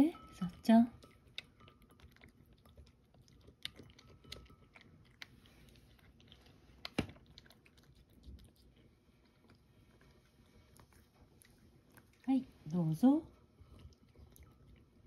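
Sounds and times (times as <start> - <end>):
cat crunching dried fish: 1.0 - 12.3.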